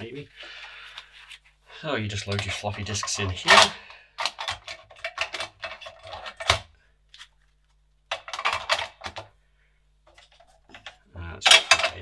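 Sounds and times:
plastic disks clattering: 2.1 - 9.4, 10.0 - 12.0.

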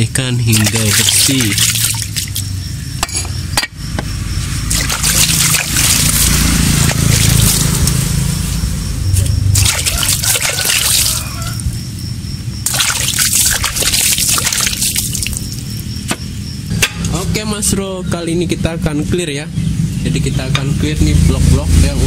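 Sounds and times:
water splashing over metal part: 0.5 - 2.5, 4.7 - 8.2, 9.5 - 11.7, 12.6 - 15.8.

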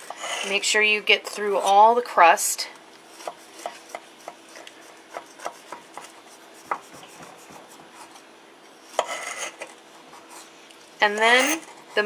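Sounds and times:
knife sawing through crumb topping: 3.2 - 8.2.

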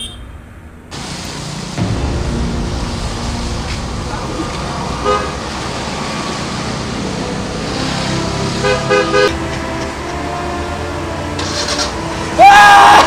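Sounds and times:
car horn toots: 0.0 - 0.4, 8.6 - 9.4
road traffic: 0.0 - 13.0.

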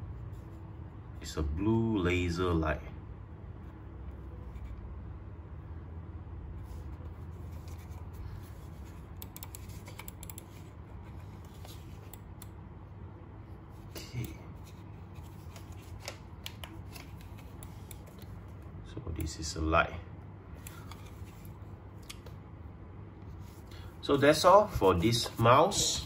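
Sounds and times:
low steady hum: 0.0 - 26.0
computer mouse clicks and scratches: 6.8 - 12.5, 14.2 - 18.6.

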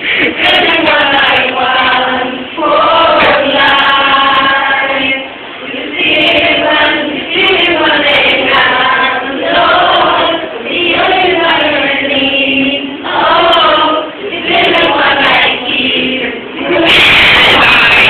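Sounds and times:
group singing in unison: 0.0 - 18.0.

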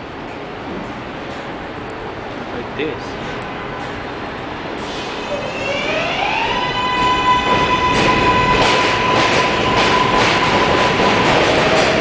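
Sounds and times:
subway train motor whine: 0.0 - 12.0.

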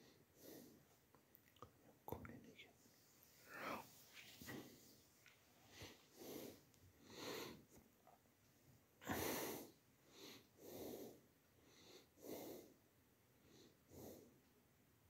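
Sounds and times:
person breathing close to microphone: 3.4 - 5.0, 5.6 - 7.7, 9.0 - 12.8.

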